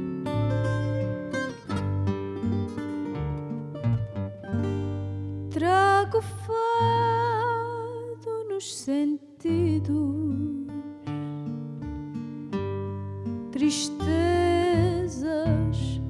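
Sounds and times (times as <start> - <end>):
plucked string trio: 0.0 - 7.5
woman singing: 5.5 - 11.1, 13.5 - 16.0.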